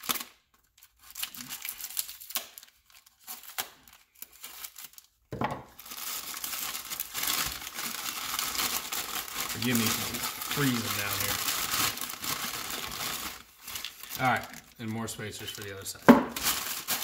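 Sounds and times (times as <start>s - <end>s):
packaging crinkling and tearing: 0.0s - 17.0s.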